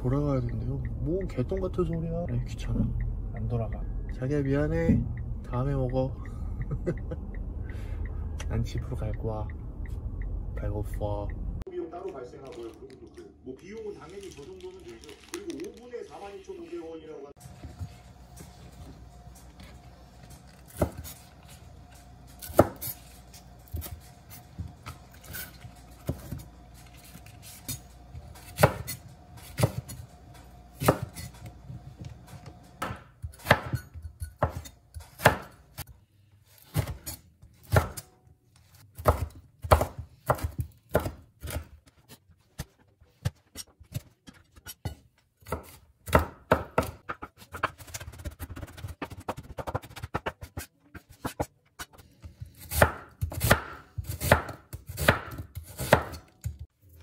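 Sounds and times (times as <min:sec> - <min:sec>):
knife chopping on cutting board: 0:22.4 - 0:23.0, 0:27.2 - 0:30.0, 0:30.8 - 0:31.5, 0:32.8 - 0:35.9, 0:36.6 - 0:38.1, 0:38.7 - 0:41.8, 0:43.2 - 0:56.6.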